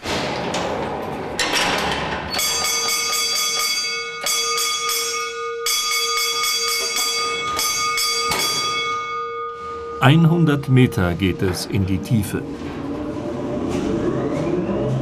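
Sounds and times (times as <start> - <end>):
metal cage gate clatter: 0.2 - 2.6
electric signal bell ringing: 2.3 - 11.4.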